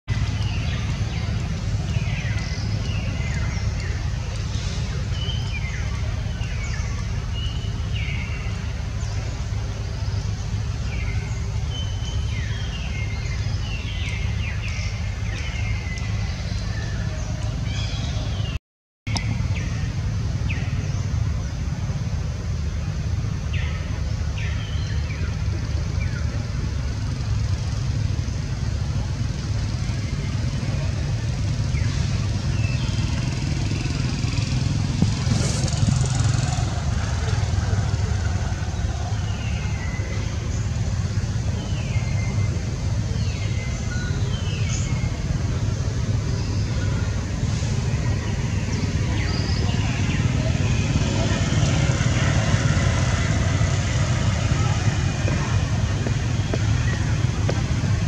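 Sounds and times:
steady low rumble: 19.1 - 58.0.

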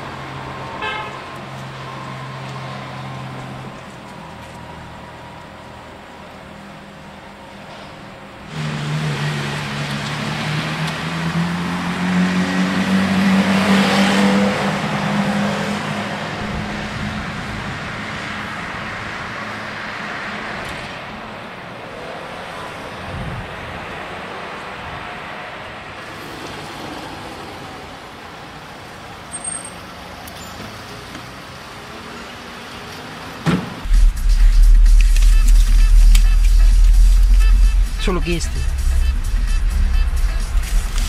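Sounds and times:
steady traffic hum: 0.0 - 41.0
thump: 33.4 - 34.5
vehicle engine passing: 33.8 - 41.0.

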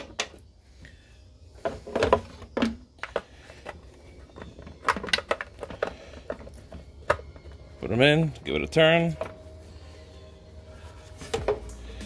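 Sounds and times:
hard plastic clicking and knocking: 1.6 - 7.6.

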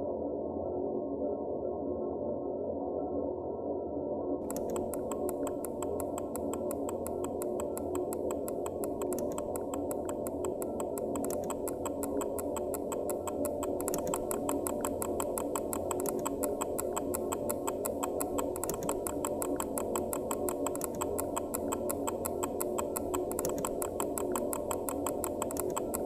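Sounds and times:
fast ticking pulse: 4.5 - 26.0.

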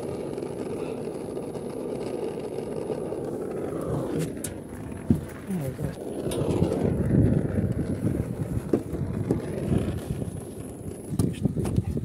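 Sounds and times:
wind buffeting microphone: 3.4 - 12.0.

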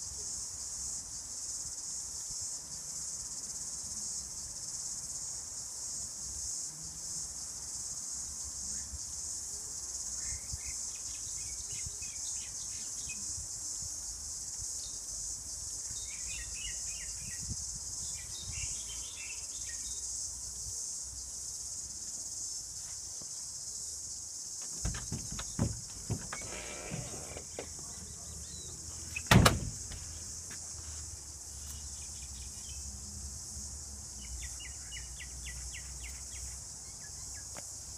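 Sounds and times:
insects trilling: 0.0 - 37.9
sharp knocks: 24.6 - 27.8, 29.3 - 30.1.

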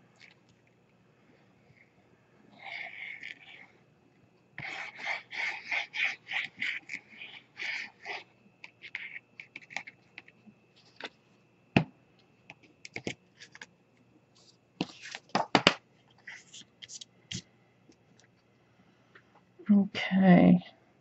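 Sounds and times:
light paper rustling: 14.3 - 17.5.

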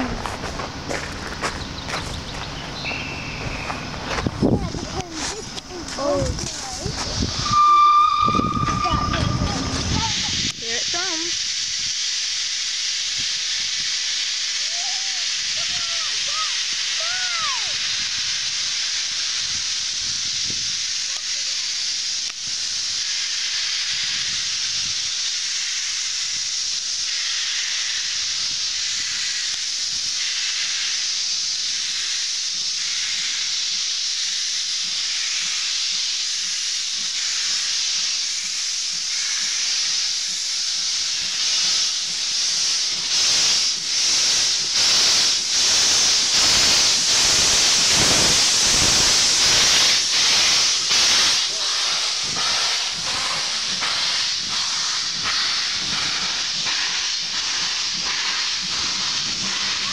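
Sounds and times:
locomotive exhaust chuffs: 0.0 - 14.5, 21.8 - 59.9
steam locomotive hissing: 0.0 - 59.9
train coaches passing: 0.0 - 59.9.

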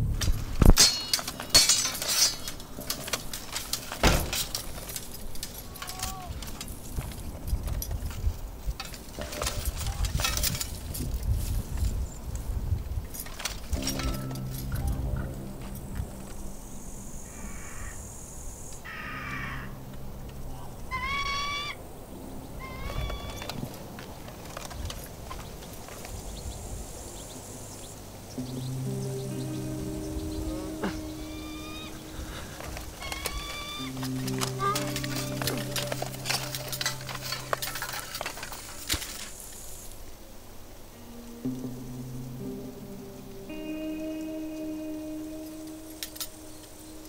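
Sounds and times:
sharp clinks and crashes: 0.0 - 12.0, 13.1 - 16.4, 32.6 - 39.6
low steady hum: 0.0 - 47.0
high hiss: 13.7 - 22.7, 26.1 - 47.0
crow cawing: 17.2 - 18.1, 18.8 - 19.8, 20.9 - 21.8, 30.5 - 34.0.

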